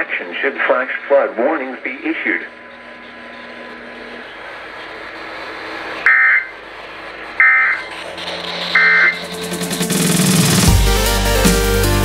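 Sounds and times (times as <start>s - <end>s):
radio static hiss: 0.0s - 7.9s
warbling digital data tones: 1.5s - 10.2s.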